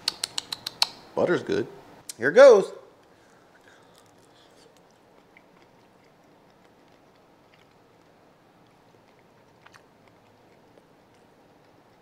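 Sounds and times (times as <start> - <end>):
faint chewing: 3.0 - 12.0.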